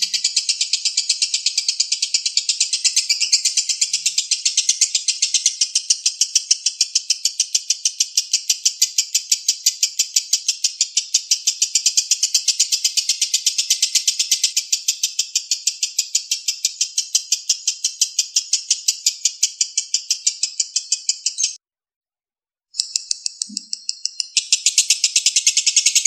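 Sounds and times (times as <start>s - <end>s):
lovebird chattering trill: 0.0s - 21.6s, 22.8s - 26.0s.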